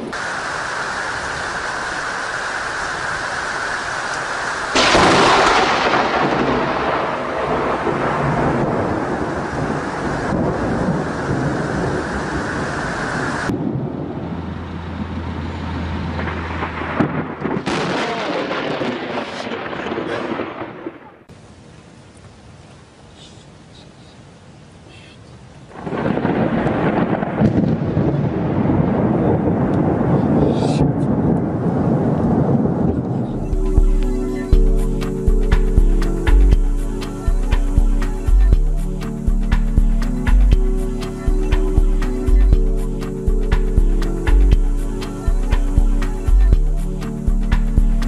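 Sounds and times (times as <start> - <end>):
thunder rumbling: 0.0 - 21.3, 25.7 - 48.0
heavy rain: 0.0 - 48.0
sharp crack of thunder: 4.7 - 15.1, 16.2 - 21.3, 25.7 - 35.8.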